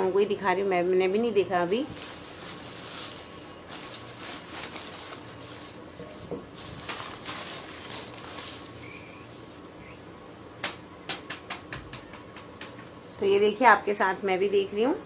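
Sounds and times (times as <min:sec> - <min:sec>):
paper and plastic crinkling: 0:01.8 - 0:09.0.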